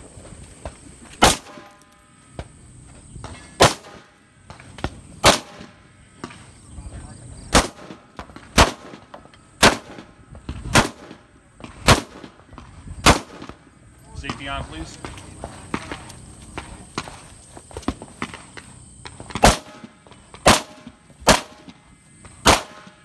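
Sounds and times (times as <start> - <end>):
rifle shots: 1.2 - 1.8, 3.6 - 4.1, 5.2 - 5.8, 7.5 - 10.1, 10.7 - 11.2, 11.8 - 12.4, 13.0 - 13.6, 19.4 - 21.8, 22.4 - 23.0.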